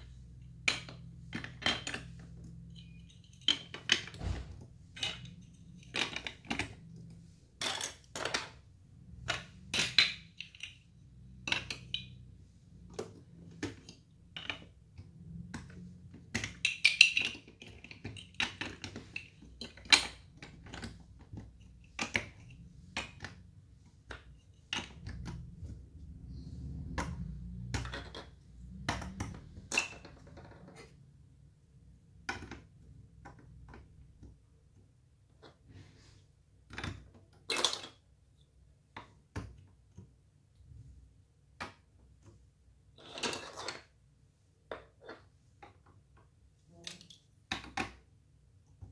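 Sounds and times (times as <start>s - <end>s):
plastic bricks clicking: 15.4s - 23.4s, 26.8s - 30.8s.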